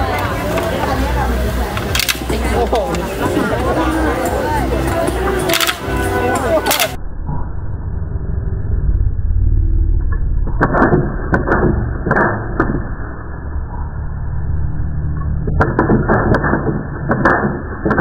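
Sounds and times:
steady low hum: 0:00.0 - 0:17.1
toy gun firing clicks: 0:01.8 - 0:02.3, 0:05.5 - 0:05.9.

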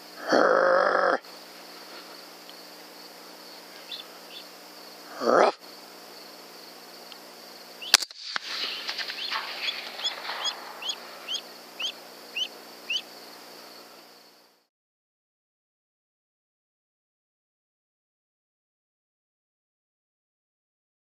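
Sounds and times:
rifle shot: 0:07.8 - 0:11.9.

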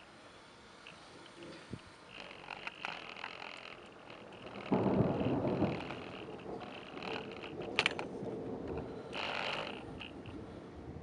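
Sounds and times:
thunder rumbling: 0:03.8 - 0:11.0
sharp click: 0:04.6 - 0:08.1.

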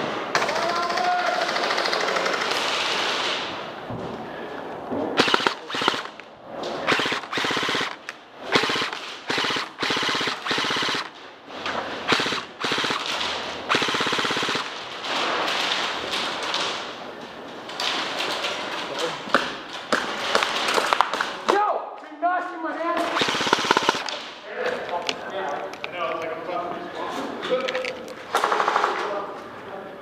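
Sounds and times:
airsoft guns firing bursts: 0:00.3 - 0:03.2, 0:05.2 - 0:06.2, 0:06.8 - 0:11.2, 0:12.0 - 0:14.9, 0:23.0 - 0:24.3, 0:28.3 - 0:29.1.

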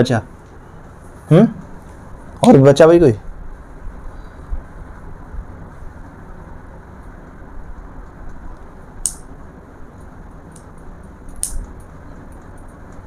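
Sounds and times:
low background hum: 0:00.0 - 0:13.0
sharp click: 0:09.0 - 0:09.3, 0:11.3 - 0:13.0.

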